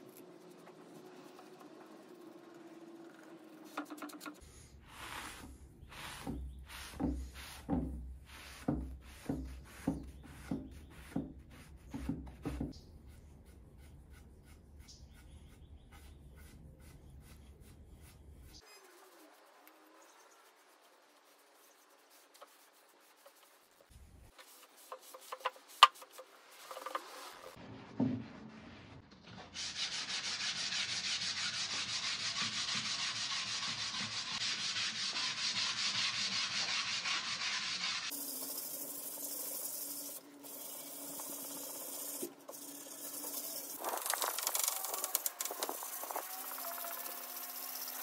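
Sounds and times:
sandpaper rasping on wood: 4.3 - 19.8, 29.6 - 48.0.

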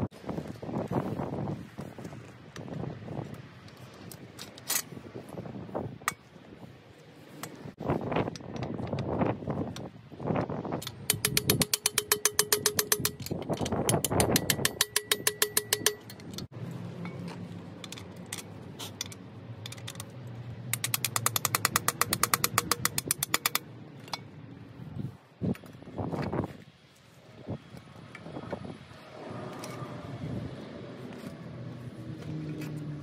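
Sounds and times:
ratchet wrench clicking: 10.8 - 16.5, 20.7 - 24.2.

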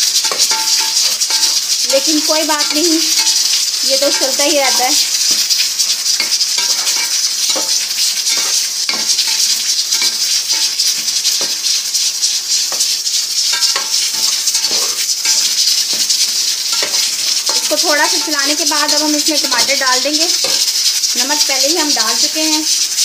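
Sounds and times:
metal spatula scraping pot: 0.0 - 23.0
onions sizzling in a pot: 0.0 - 23.0
pressure cooker steam hiss: 0.0 - 23.0.

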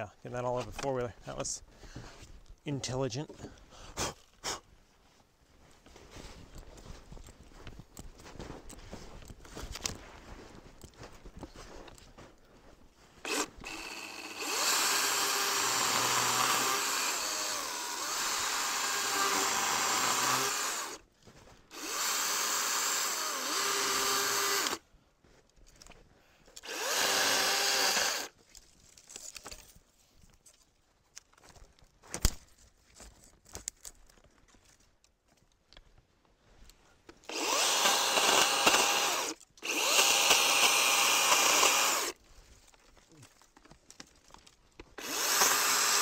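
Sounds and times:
electric chainsaw cutting wood: 13.2 - 21.0, 21.7 - 24.8, 26.6 - 28.3, 37.3 - 42.2, 45.0 - 46.0.

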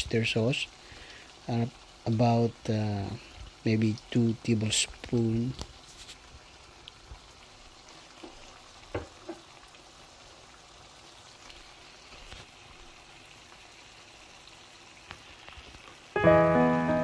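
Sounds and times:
meat sizzling in a wok: 0.0 - 17.0.

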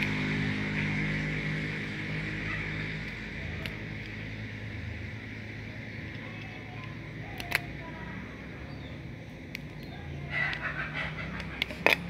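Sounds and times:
low background hum: 0.0 - 12.0
knife clicking on plastic rings: 6.0 - 7.8, 9.4 - 12.0.

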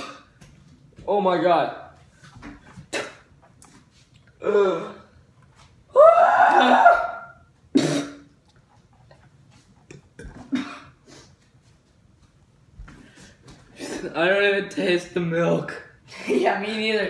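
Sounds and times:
boys gagging and retching: 2.9 - 3.3, 7.8 - 8.4, 9.8 - 10.9.

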